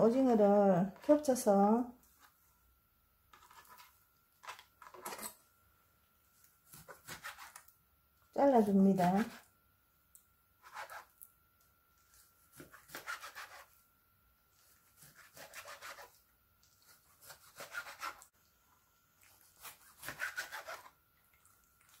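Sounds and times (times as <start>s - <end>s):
knife cutting on plastic board: 6.7s - 7.6s, 10.6s - 11.1s, 12.5s - 13.7s, 14.8s - 16.2s, 16.9s - 18.2s, 19.5s - 21.0s.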